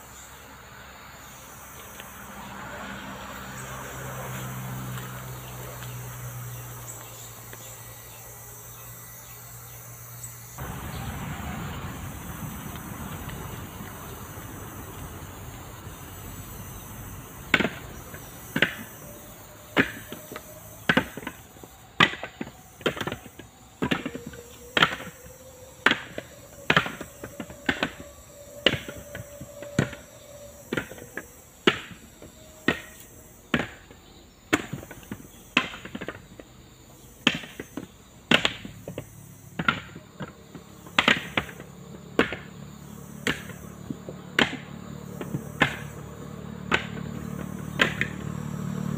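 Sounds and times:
coconuts knocking onto a pile: 39.5 - 41.6, 42.2 - 42.5, 44.3 - 46.0, 46.7 - 48.2.

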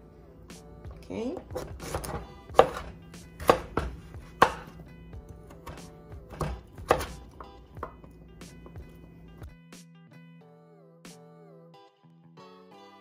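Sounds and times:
knife chopping on wooden board: 1.4 - 4.8, 5.4 - 8.9.

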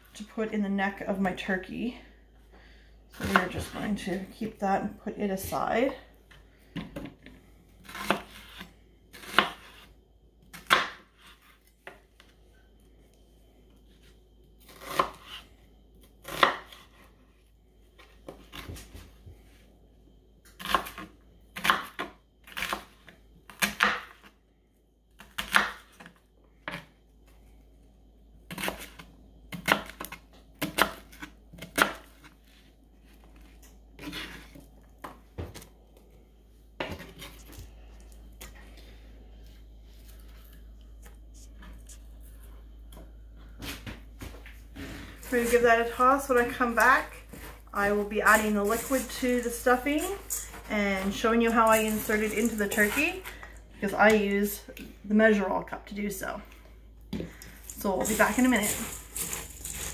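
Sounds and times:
knife chopping on cutting board: 7.9 - 9.8.

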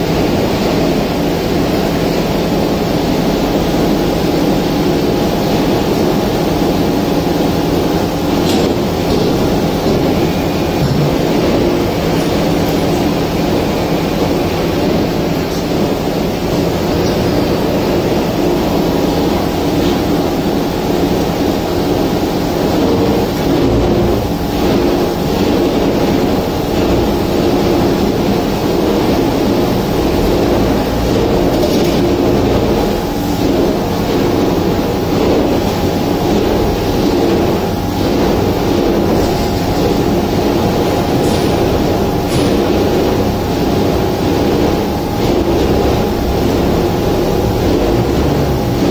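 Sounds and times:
hydraulic press machinery hum: 0.0 - 48.9.

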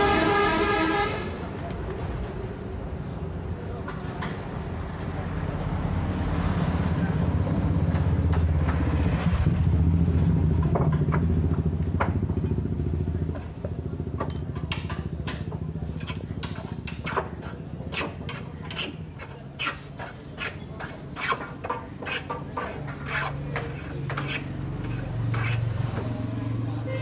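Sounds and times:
metallic clicks and clinks: 14.2 - 14.8.

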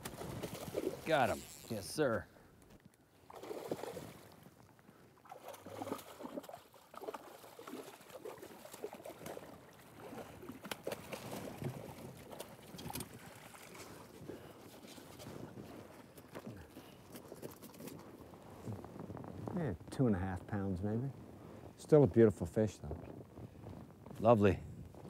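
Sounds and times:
fish splashing in water: 5.2 - 14.0.

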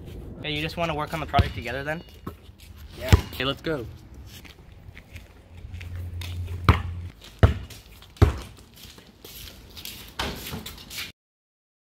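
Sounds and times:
wind rumble on microphone: 0.0 - 1.8.

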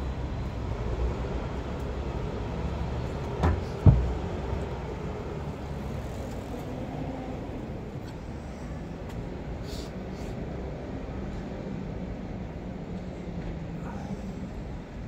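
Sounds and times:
low rumble of street traffic: 0.0 - 15.0
sharp knocks: 3.4 - 4.3.

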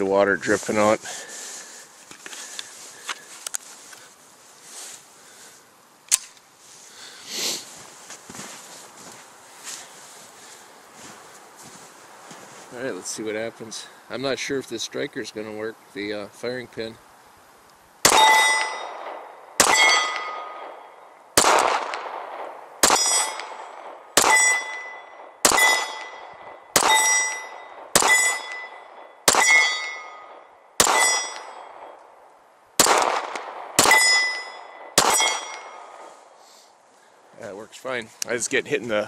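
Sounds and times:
pistol shots: 18.0 - 32.0, 32.8 - 36.0
ringing tone: 24.4 - 26.3, 26.9 - 30.4, 33.9 - 35.8.

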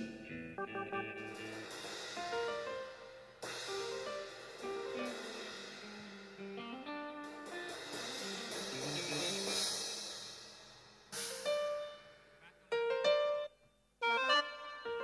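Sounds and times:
cymbal ringing: 7.4 - 11.2.

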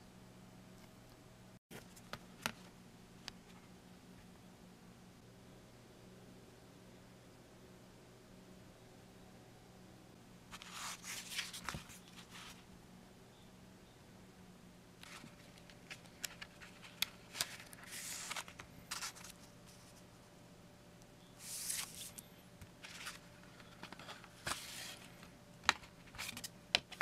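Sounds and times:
paper booklet rustling: 10.5 - 12.6, 15.0 - 20.1, 21.4 - 27.0.

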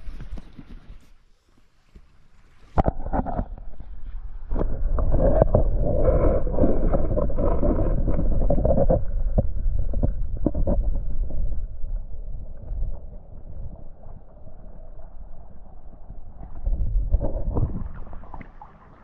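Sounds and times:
muffled underwater river water: 0.0 - 19.0.

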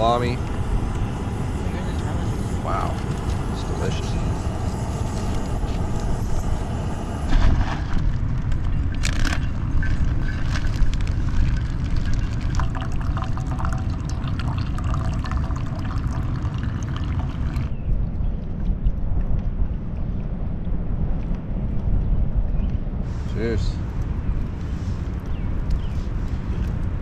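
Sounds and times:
steady low rumble: 0.0 - 27.0
water trickling into coffee dripper: 9.7 - 17.7.

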